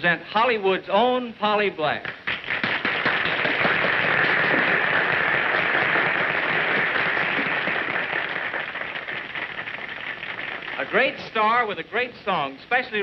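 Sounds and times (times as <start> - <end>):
audience applauding: 2.1 - 11.3.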